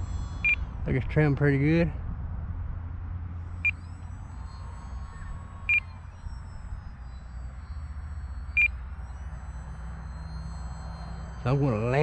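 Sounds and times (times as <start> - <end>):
model plane motor whining: 0.0 - 1.9, 2.6 - 12.0
wind rumble on microphone: 0.0 - 9.0
short high beeps: 3.5 - 12.0.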